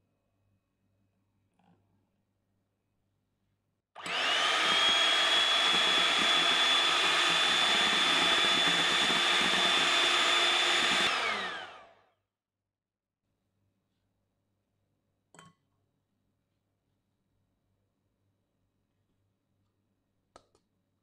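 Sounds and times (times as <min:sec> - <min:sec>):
electric hand mixer whine: 0:04.0 - 0:12.0.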